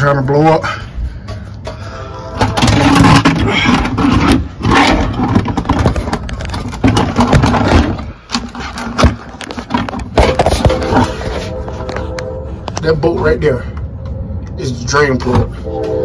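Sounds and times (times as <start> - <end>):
phone scraping and rustling: 2.3 - 12.9.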